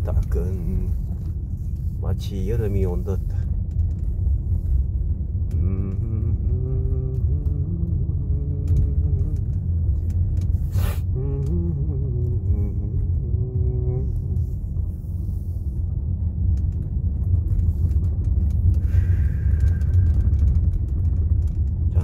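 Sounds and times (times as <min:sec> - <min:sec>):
car engine and tyre drone: 0:00.0 - 0:22.0.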